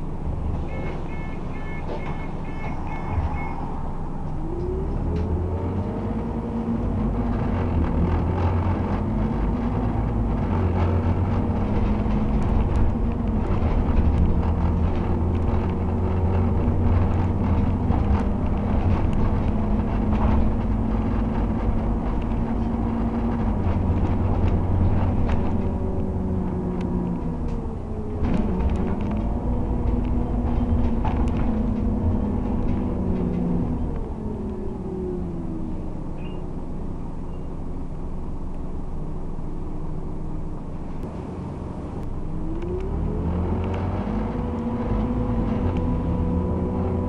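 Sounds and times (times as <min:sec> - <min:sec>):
bus engine from inside cabin: 0:00.0 - 0:47.0
light interior rattles: 0:06.9 - 0:34.9.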